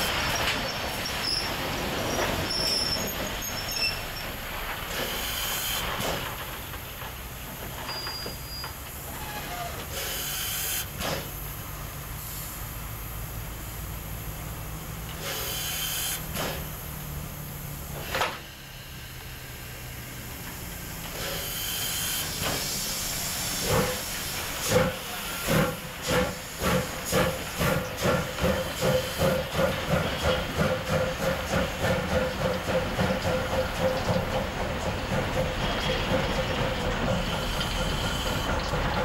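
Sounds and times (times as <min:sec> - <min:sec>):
steam locomotive hissing: 0:00.0 - 0:39.0
locomotive exhaust chuffs: 0:10.8 - 0:39.0
cylinder cocks blowing steam: 0:18.4 - 0:39.0.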